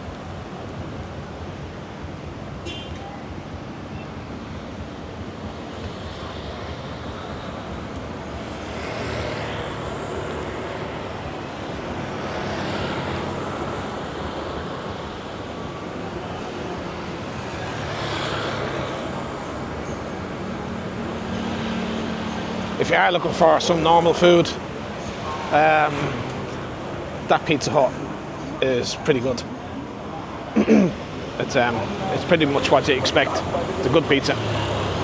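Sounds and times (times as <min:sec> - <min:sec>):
cars and scooters driving by: 0:00.0 - 0:35.0
steady traffic hum: 0:00.0 - 0:35.0.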